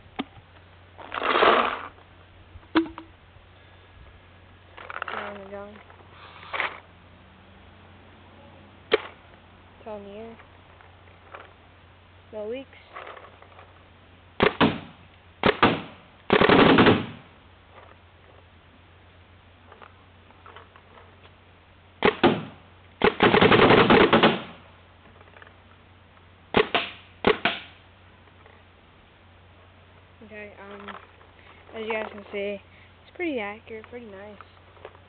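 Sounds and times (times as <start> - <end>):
paintball marker firing bursts: 14.4 - 17.2, 22.0 - 24.6, 26.5 - 27.8.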